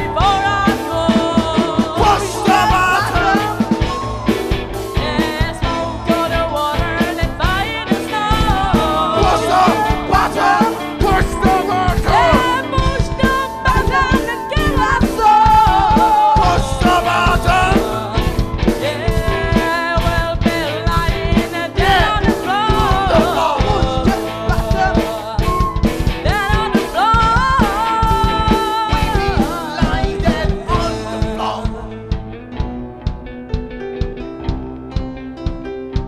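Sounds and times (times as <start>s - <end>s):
person singing: 0.0s - 32.2s
drum kit beat: 0.0s - 36.0s
electric guitar: 0.0s - 36.0s
flute: 2.0s - 5.8s, 22.8s - 26.2s.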